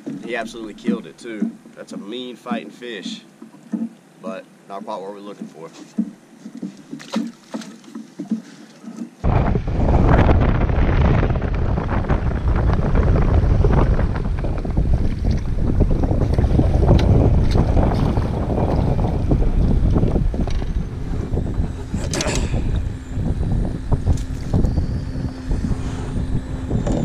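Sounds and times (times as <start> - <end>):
faint knocks and clicks: 0.0 - 9.2
wind buffeting microphone: 9.2 - 27.0.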